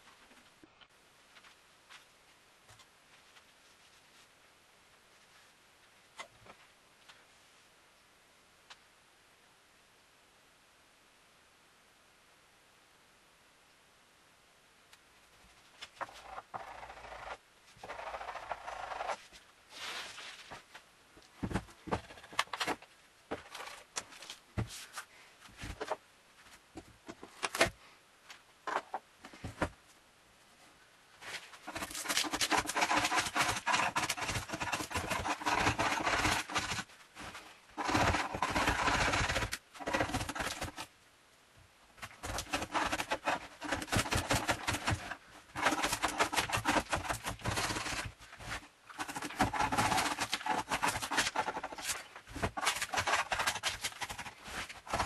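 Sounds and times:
blade scraping wood: 0:31.6 - 0:40.8, 0:42.1 - 0:55.0.

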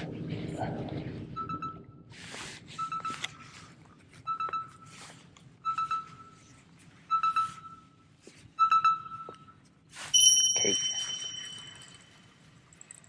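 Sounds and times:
short electronic beeps: 0:07.1 - 0:08.0, 0:10.2 - 0:11.7
bright ringing chime: 0:10.2 - 0:12.8.

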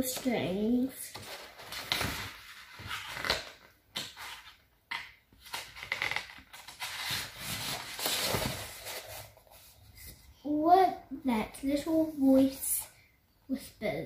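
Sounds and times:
book pages rustling: 0:01.1 - 0:10.2.

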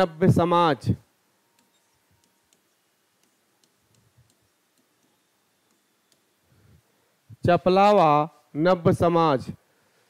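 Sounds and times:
stylus ticking on touchscreen: 0:01.5 - 0:06.4.

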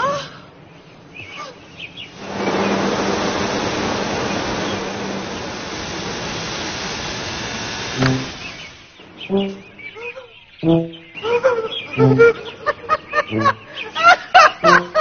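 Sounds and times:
low hum: 0:00.0 - 0:15.0
blower air rush: 0:01.6 - 0:09.9, 0:14.6 - 0:15.0.

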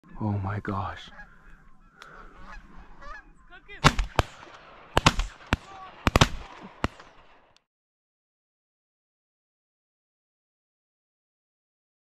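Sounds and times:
geese honking: 0:00.8 - 0:04.6
shotgun blasts: 0:03.8 - 0:07.6.

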